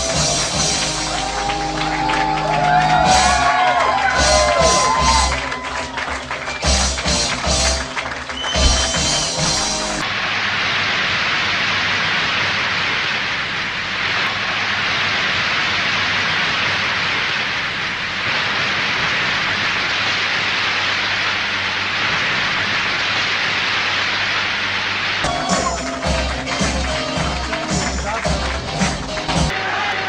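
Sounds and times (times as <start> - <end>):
crowd applause: 0.0 - 10.0, 25.2 - 30.0.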